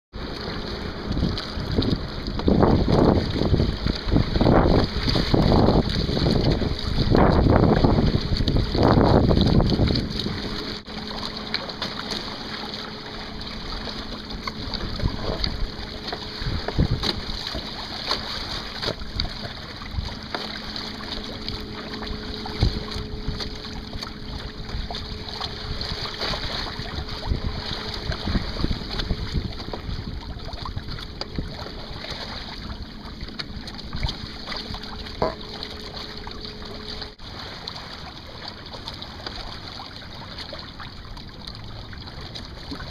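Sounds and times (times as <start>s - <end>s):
water splashing along hull: 0.1s - 42.9s
wind buffeting microphone: 0.2s - 10.9s, 13.3s - 20.2s, 21.0s - 37.0s.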